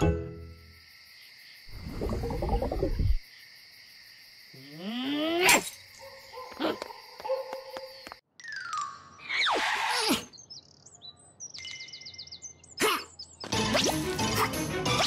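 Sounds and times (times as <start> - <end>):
crickets chirping: 0.2 - 8.2.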